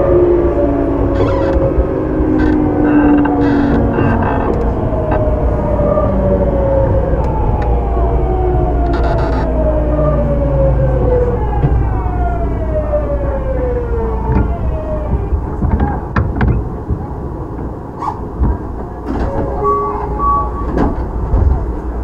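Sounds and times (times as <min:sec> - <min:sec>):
train inverter whine: 0:00.0 - 0:22.0
train running rumble: 0:00.0 - 0:22.0
clicks and knocks: 0:02.3 - 0:05.3.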